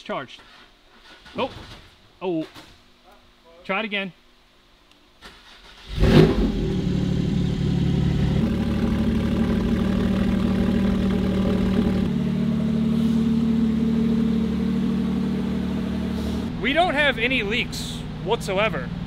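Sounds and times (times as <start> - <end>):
car engine idling: 6.0 - 19.0.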